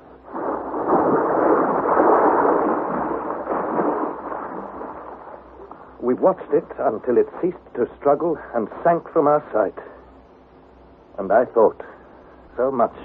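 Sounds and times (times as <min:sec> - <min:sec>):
loud surge of noise: 0:00.1 - 0:06.1.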